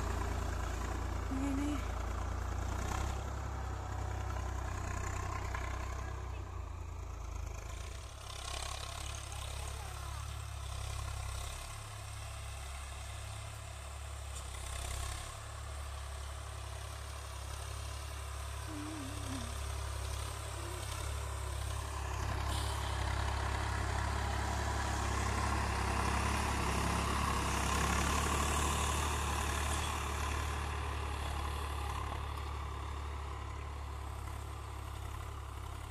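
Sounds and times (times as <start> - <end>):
tractor diesel engine running: 0.0 - 35.9.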